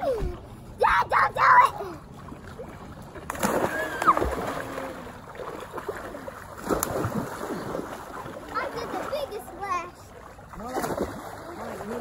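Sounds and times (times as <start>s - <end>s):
children's voices and shouts: 0.0s - 2.0s
children splashing in water: 0.0s - 12.0s.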